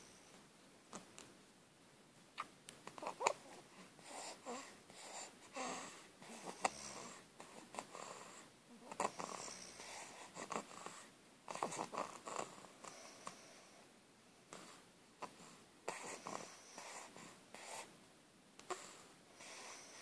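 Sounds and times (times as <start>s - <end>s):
snoring and wheezy breathing: 3.0s - 13.9s, 14.5s - 17.9s, 18.7s - 20.0s.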